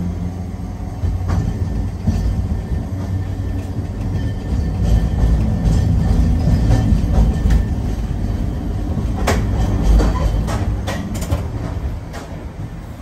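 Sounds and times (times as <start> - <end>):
tram rumbling: 0.0 - 13.0
wheels clacking on rails: 0.0 - 13.0.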